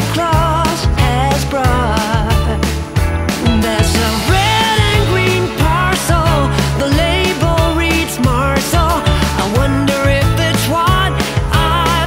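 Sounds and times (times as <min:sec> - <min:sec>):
upbeat song with steady beat: 0:00.0 - 0:12.0.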